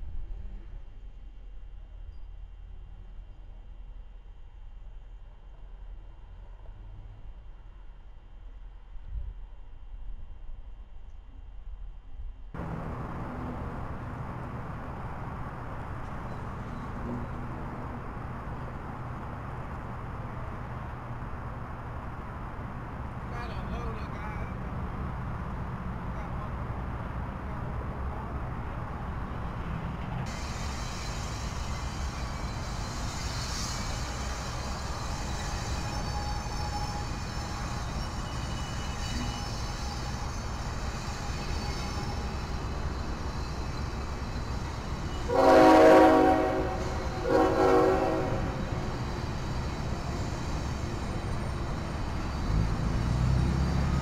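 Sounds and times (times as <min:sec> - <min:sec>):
vehicle rumble: 0:00.0 - 0:30.3, 0:48.1 - 0:54.0
rushing rumble: 0:12.1 - 0:23.4.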